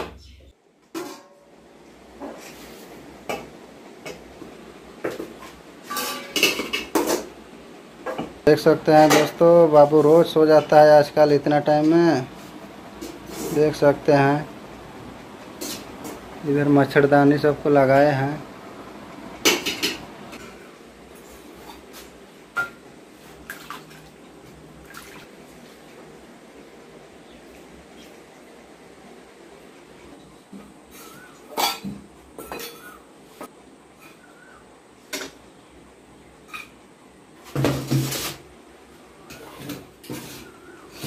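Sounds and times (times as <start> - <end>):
steel bowls and plates clinking: 5.8 - 7.3, 31.0 - 33.0.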